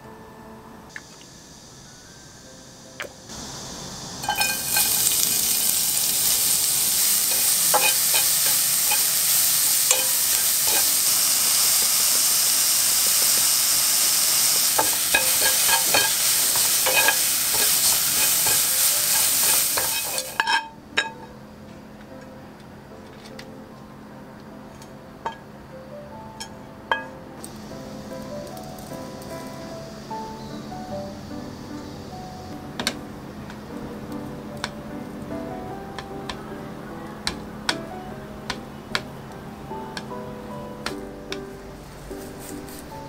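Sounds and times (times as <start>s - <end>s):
vegetables sizzling in oil: 1.0s - 21.2s, 26.9s - 35.1s.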